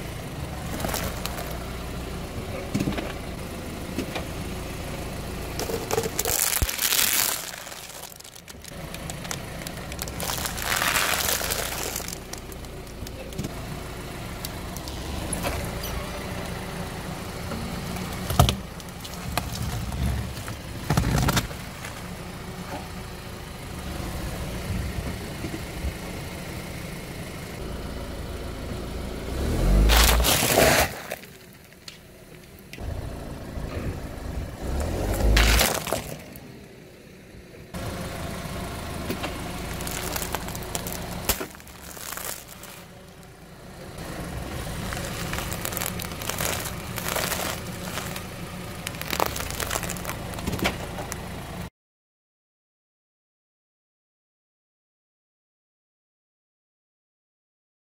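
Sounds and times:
car engine idling: 0.0s - 51.7s
tyre crushing objects on paving: 0.6s - 1.7s, 5.6s - 13.6s, 17.8s - 22.1s, 29.6s - 31.9s, 34.6s - 36.4s, 39.1s - 43.2s, 44.4s - 51.2s.

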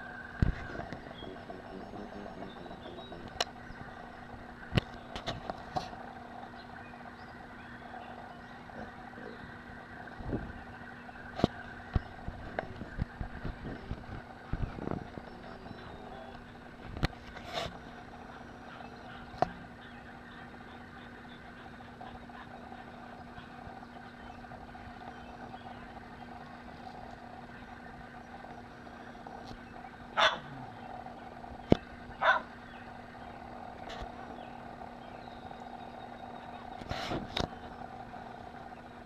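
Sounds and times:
steady background hum: 0.0s - 39.0s
dog barks: 30.2s - 30.5s, 32.2s - 32.5s.

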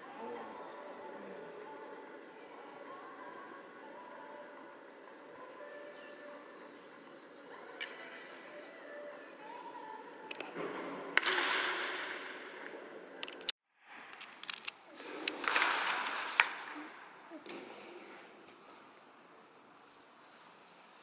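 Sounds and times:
clicks of balls and equipment: 10.3s - 16.8s.

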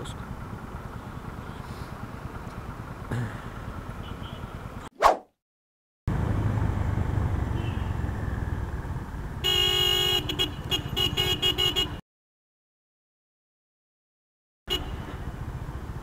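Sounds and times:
motorcycle engine rumbling: 0.0s - 4.8s
vehicle horn honking: 4.0s - 4.6s, 7.6s - 8.0s, 9.4s - 12.0s.

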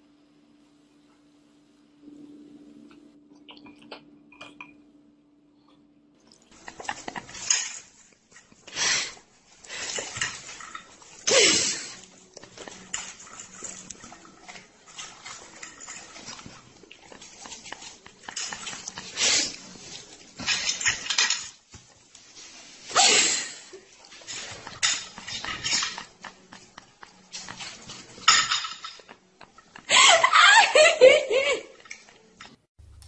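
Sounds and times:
low steady hum: 0.0s - 8.6s
dog eating from plate: 11.9s - 21.5s.

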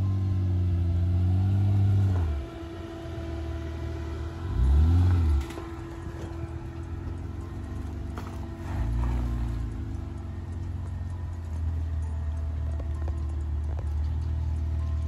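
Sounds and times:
engine revving under load: 0.0s - 11.2s.

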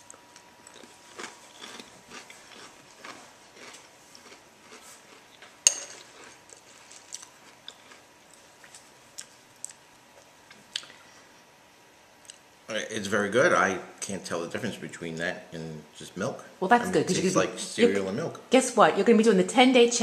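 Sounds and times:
person chewing cereal: 0.0s - 11.1s.

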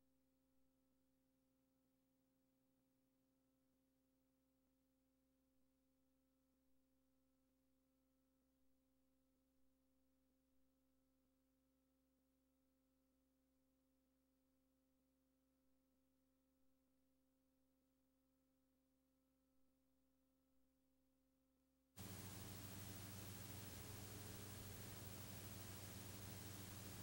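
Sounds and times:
faint electrical hum: 22.0s - 27.0s
steady hiss with low hum: 22.0s - 27.0s.

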